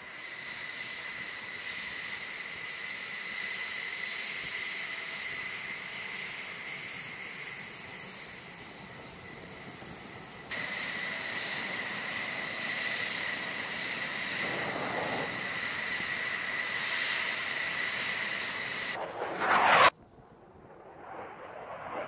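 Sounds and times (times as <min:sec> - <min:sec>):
jet engine whistling whine: 0:00.0 - 0:22.0
rushing jet noise: 0:10.5 - 0:22.0.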